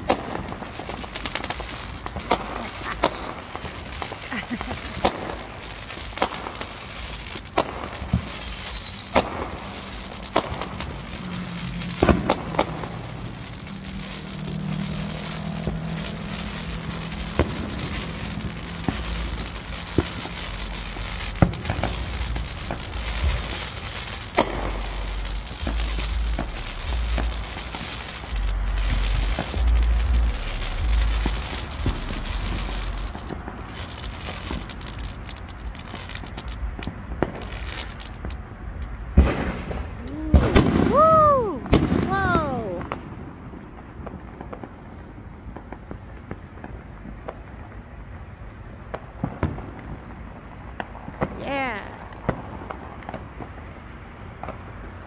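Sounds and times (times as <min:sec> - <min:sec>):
fireworks bangs and pops: 0:00.0 - 0:55.0
fireworks crackling: 0:00.0 - 0:55.0
falling whistle: 0:08.2 - 0:09.2, 0:23.4 - 0:24.5
low rumble: 0:10.6 - 0:40.9.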